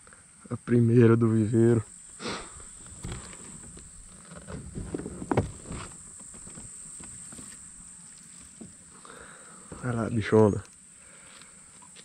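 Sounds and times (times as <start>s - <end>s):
high-pitched insect drone: 0.4s - 12.0s
gear knocking on plastic hull: 2.9s - 7.4s.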